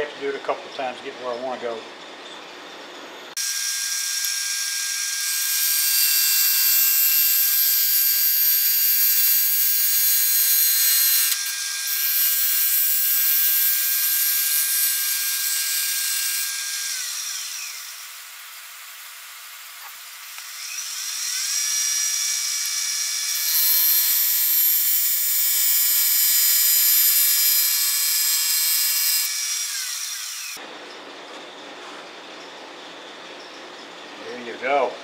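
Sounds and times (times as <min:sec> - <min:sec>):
turning tool cutting wood: 0:03.3 - 0:30.6
wood lathe whining: 0:03.4 - 0:30.6.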